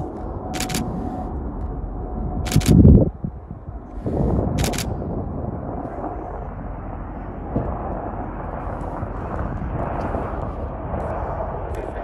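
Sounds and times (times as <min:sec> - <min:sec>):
low outdoor rumble: 0:00.0 - 0:12.0
camera shutter clicks: 0:00.6 - 0:00.9, 0:02.5 - 0:02.8, 0:04.6 - 0:04.9.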